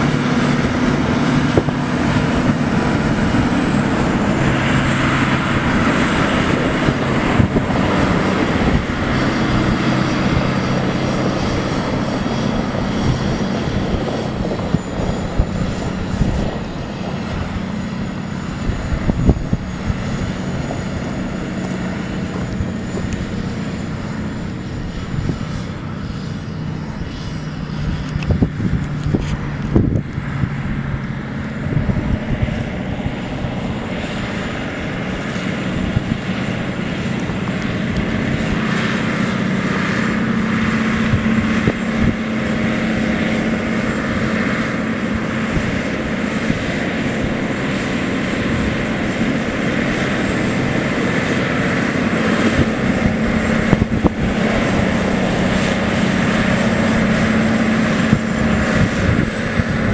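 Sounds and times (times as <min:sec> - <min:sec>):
tractor diesel engine drone: 0:00.0 - 0:59.9.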